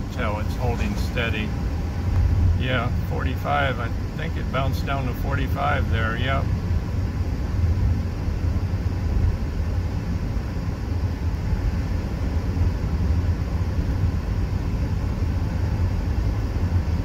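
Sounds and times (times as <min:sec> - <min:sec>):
road and engine rumble in car cabin: 0:00.0 - 0:17.0.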